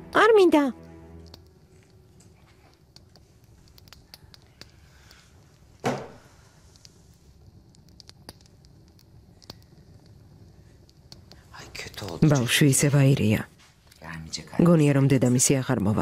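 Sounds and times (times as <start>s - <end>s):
small clicks and rustles: 1.3s - 5.8s, 6.5s - 12.7s.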